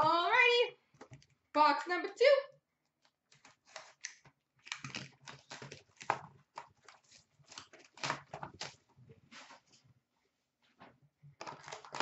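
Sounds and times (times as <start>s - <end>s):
shrink wrap tearing and crinkling: 3.3s - 8.9s, 11.4s - 12.0s.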